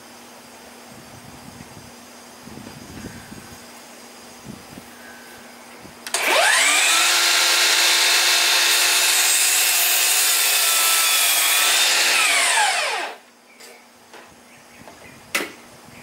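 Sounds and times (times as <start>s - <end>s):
miter saw whining: 6.1s - 13.3s.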